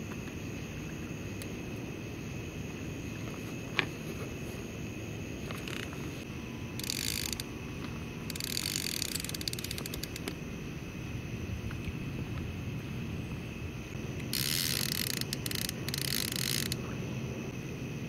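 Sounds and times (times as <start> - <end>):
fishing reel clicking: 6.8 - 7.5, 8.3 - 10.4, 14.2 - 16.8
low background rumble: 9.9 - 14.3.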